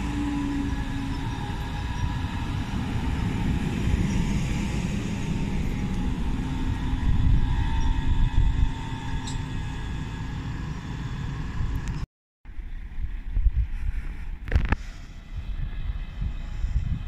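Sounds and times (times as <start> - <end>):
train wheels rumbling on rails: 0.0 - 12.0.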